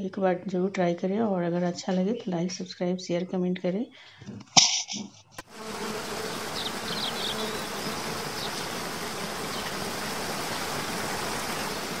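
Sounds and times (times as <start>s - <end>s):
waterfall rushing: 6.5s - 12.0s.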